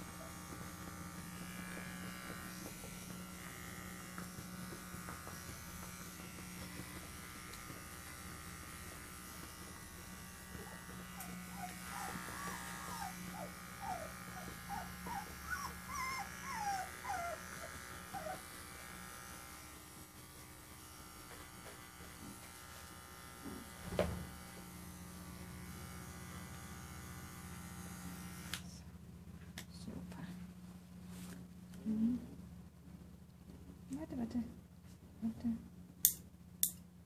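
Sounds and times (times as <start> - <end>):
electric clipper buzzing: 0.0 - 28.8
puppy whimpering: 11.1 - 18.5.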